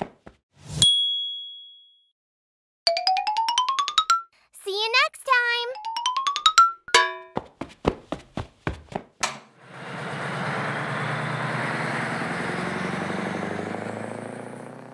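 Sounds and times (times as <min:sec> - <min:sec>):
diesel truck engine running: 0:09.6 - 0:14.9.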